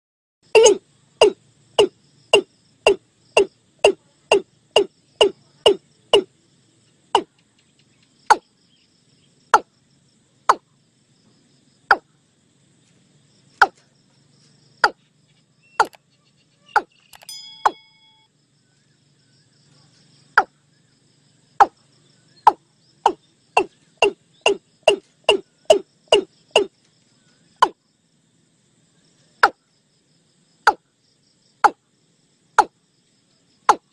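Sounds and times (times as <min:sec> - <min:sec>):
bird giving sharp tok calls: 0:15.8 - 0:16.0.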